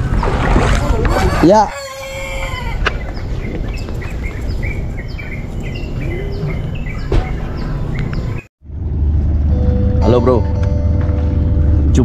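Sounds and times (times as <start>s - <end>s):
small birds chirping: 2.5s - 8.5s
steady low rumble: 7.9s - 12.0s.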